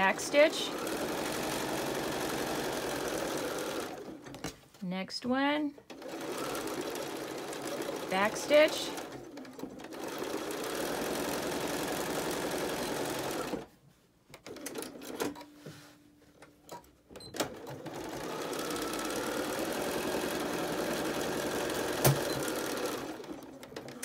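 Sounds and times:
sewing machine stitching: 0.0s - 4.4s, 5.9s - 13.7s, 17.1s - 24.0s.

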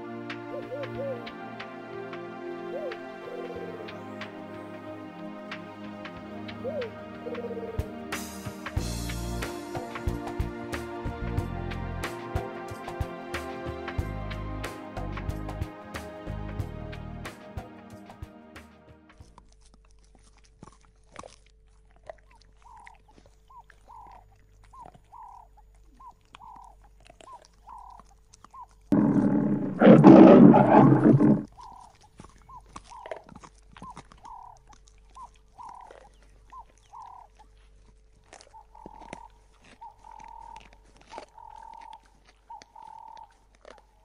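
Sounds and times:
bird calling: 0.5s - 1.3s, 2.7s - 4.4s, 6.6s - 7.8s, 22.6s - 33.2s, 35.2s - 37.4s, 38.5s - 43.4s
lions tearing and chewing: 19.1s - 44.0s
wet clicks and crunches: 19.1s - 44.0s
lion growling: 28.9s - 31.7s.

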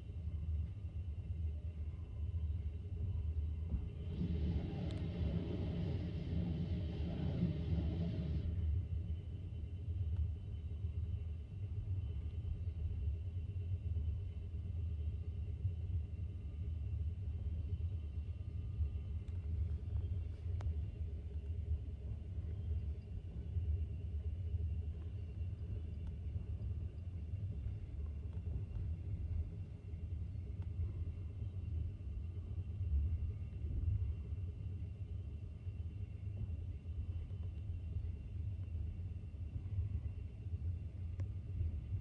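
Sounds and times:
train rumbling at speed: 3.4s - 11.0s.

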